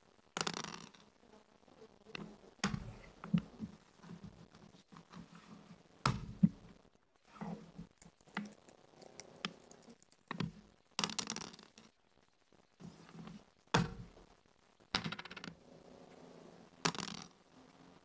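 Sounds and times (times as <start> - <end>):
dice clattering on board: 16.9 - 17.3.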